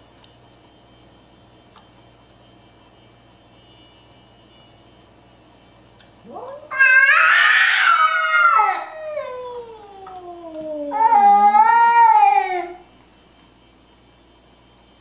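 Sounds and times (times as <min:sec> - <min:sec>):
cat yowling: 0:06.3 - 0:12.8.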